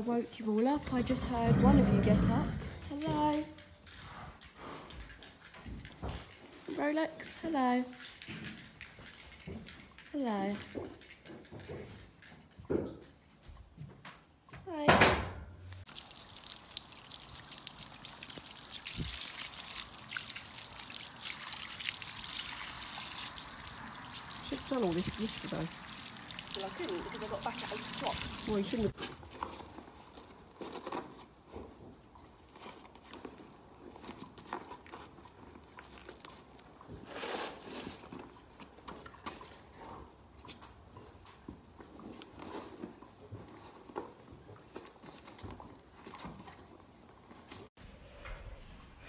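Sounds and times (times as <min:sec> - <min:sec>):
water spattering on ground: 0:15.9 - 0:29.0.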